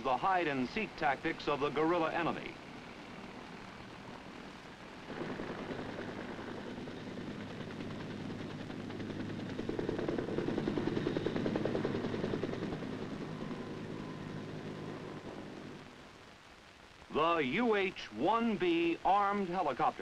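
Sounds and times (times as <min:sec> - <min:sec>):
helicopter in flight: 0:00.0 - 0:15.8.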